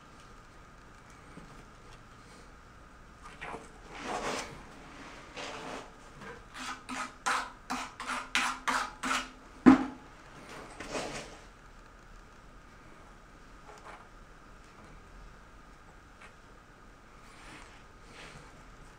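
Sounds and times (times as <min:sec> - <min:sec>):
hand tool scraping hard surface: 0:05.3 - 0:09.3.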